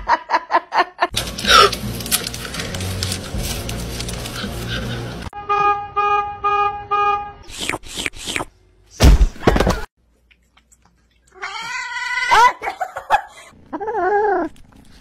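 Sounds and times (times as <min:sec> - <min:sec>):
pulsed horn beeps: 0:05.4 - 0:07.5
loud thud: 0:09.0 - 0:09.8.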